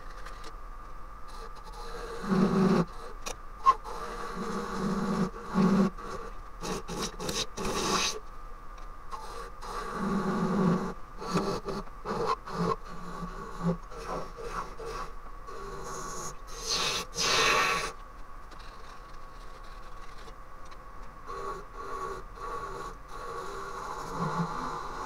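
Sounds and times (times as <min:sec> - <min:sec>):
turning tool scraping wood: 0:03.6 - 0:08.2, 0:09.2 - 0:17.9.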